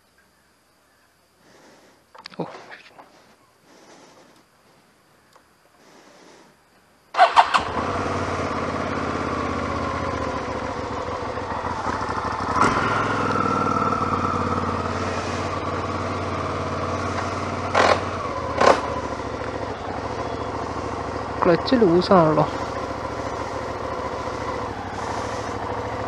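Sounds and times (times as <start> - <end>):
engine revving blips: 7.1 - 26.0
motorcycle engine starting and idling: 7.1 - 26.0.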